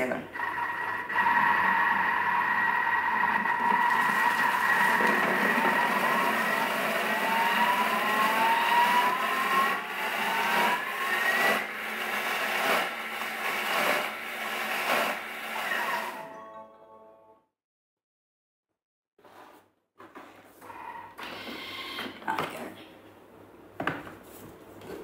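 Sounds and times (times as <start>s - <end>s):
blender motor whining: 0.3s - 16.3s.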